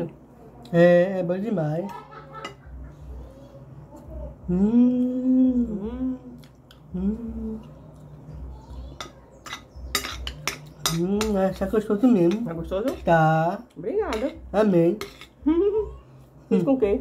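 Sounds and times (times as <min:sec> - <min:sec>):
person humming while chewing: 0:03.8 - 0:08.2, 0:15.4 - 0:16.3
spoon clinking on glass plate: 0:09.0 - 0:11.4.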